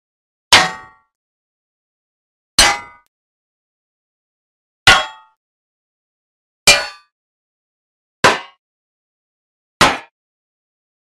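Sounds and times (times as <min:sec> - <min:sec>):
hammer clanging on anvil: 0:02.6 - 0:03.1, 0:08.3 - 0:08.6.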